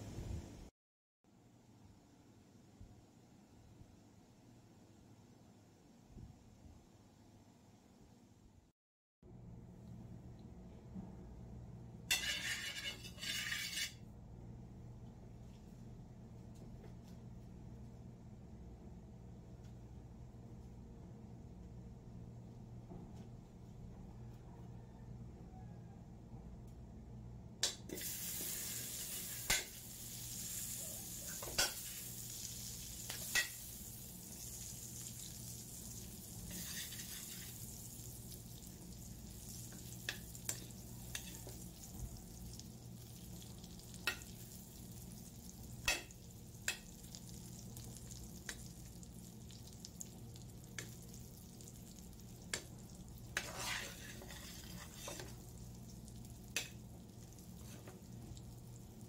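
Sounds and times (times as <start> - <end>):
butter sizzling in a wok: 12.1 - 14.0, 27.8 - 59.0
metal spoon scraping a pan: 12.1 - 14.0, 36.4 - 37.7, 40.1 - 41.6, 52.5 - 55.4.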